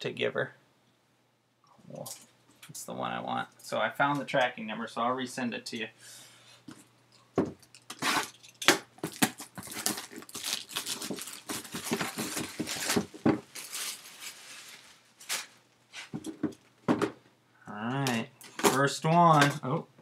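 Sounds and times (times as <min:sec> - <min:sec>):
crinkling plastic wrap: 0:09.0 - 0:15.7
small knocks of boxes: 0:16.2 - 0:17.2.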